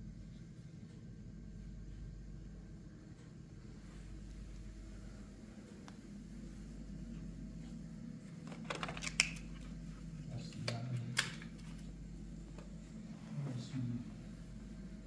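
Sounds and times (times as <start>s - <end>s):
low steady hum: 0.0s - 15.0s
handling clicks and rustles: 8.2s - 12.8s.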